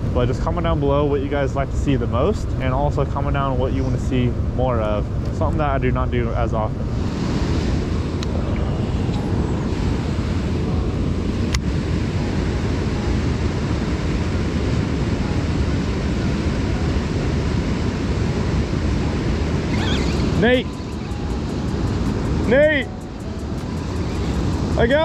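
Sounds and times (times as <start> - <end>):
wind on microphone: 6.7 - 25.0.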